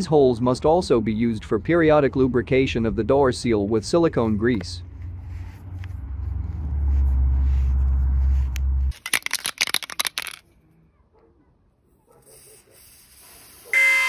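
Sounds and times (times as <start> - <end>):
loud low rumble: 4.8 - 8.9
aerosol can being shaken: 8.9 - 10.4.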